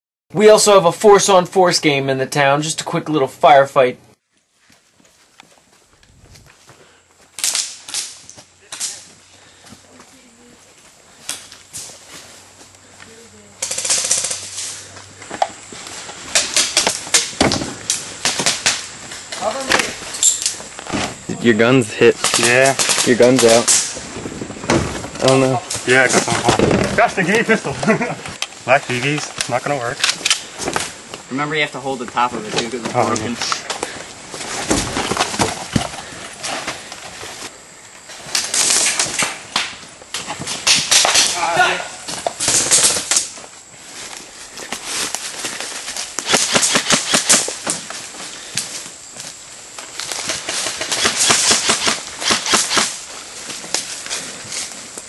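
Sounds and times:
footsteps crunching on leaf litter: 4.4 - 13.2, 41.9 - 46.3, 47.4 - 51.0
airsoft rifle full-auto burst: 13.6 - 14.5, 46.2 - 47.5, 50.7 - 53.0.

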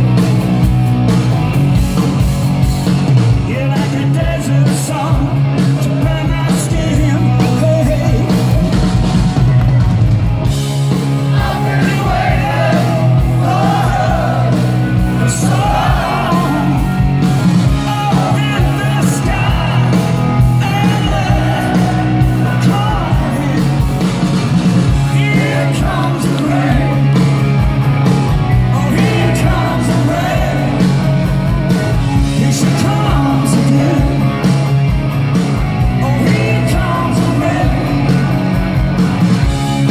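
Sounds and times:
bass guitar: 0.0 - 39.9
drums: 0.0 - 39.9
electric guitars: 0.0 - 39.9
man singing lead vocals: 3.3 - 9.1, 11.3 - 24.1, 24.8 - 27.4, 28.5 - 34.8, 35.8 - 38.7.

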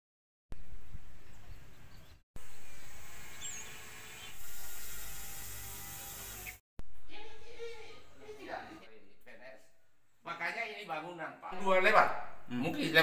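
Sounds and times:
bird chirp: 1.1 - 5.1.

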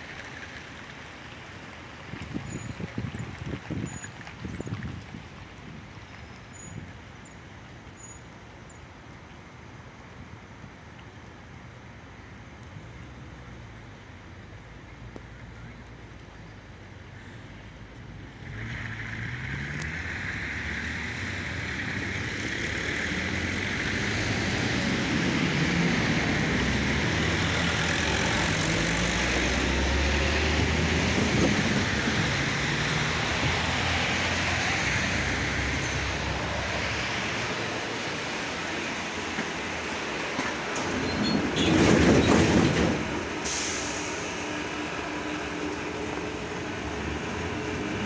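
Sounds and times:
tram running on rails: 17.0 - 48.0.

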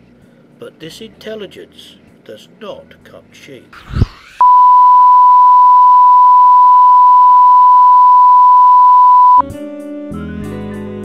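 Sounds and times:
broadcast test tone: 4.4 - 9.4
music: 9.4 - 11.0.

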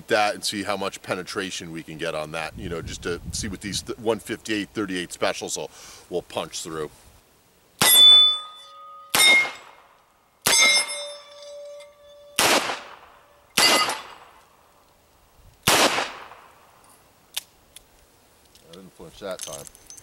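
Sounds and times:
steel targets ringing: 7.8 - 9.8, 10.4 - 14.3
revolver gunshots: 9.1 - 9.8, 12.4 - 14.4, 15.6 - 16.6.

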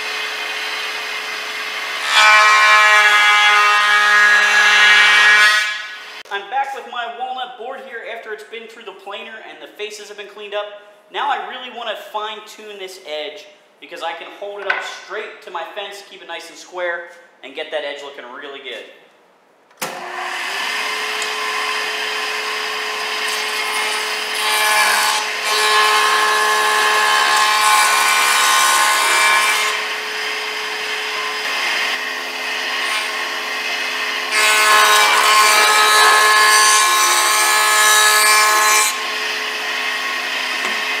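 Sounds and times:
jointer rasping cut on wood: 19.9 - 41.0.

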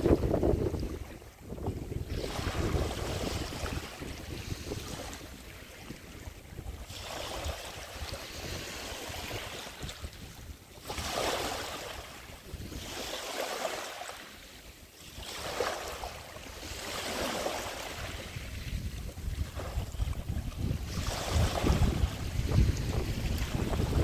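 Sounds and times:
wind rumble on microphone: 0.0 - 13.4, 15.1 - 24.0
waves lapping on pebbly beach: 0.0 - 24.0.

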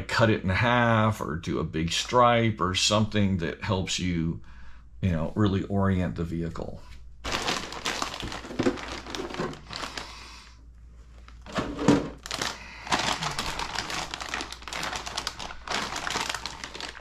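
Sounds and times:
plastic bags crinkling and rustling: 7.2 - 10.3, 11.0 - 17.0.

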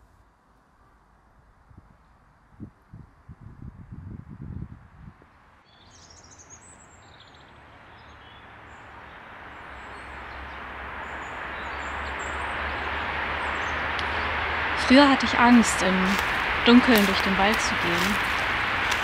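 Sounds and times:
distant road traffic: 5.4 - 19.0
songbirds chirping: 5.6 - 19.0.

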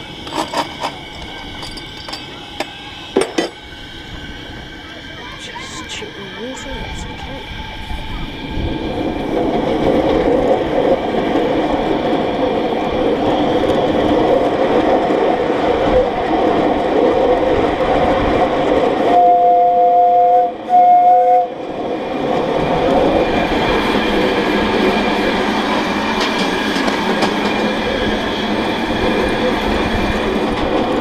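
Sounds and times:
miniature steam locomotive running: 0.0 - 31.0
two-note steam whistle blasts: 19.1 - 21.6.

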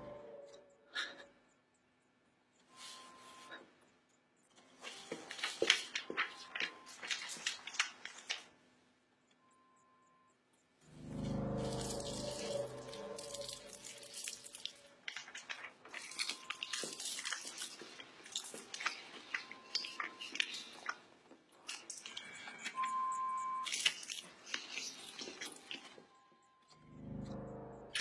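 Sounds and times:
crunching and crackling clicks: 3.8 - 8.6, 11.3 - 26.8
electronic beep: 22.2 - 23.8.

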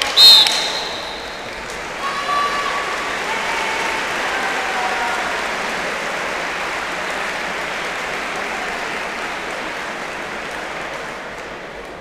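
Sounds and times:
large crowd applauding: 1.0 - 12.0.

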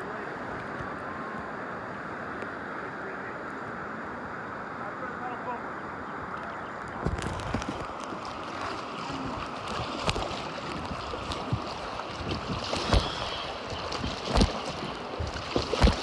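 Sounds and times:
river water lapping against raft: 0.0 - 16.0
wind buffeting microphone: 6.5 - 16.0.

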